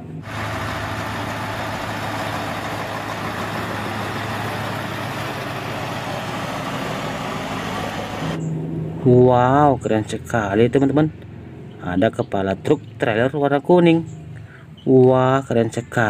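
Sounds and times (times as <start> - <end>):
diesel truck engine humming: 0.0 - 8.5
road and wind noise: 0.0 - 14.8.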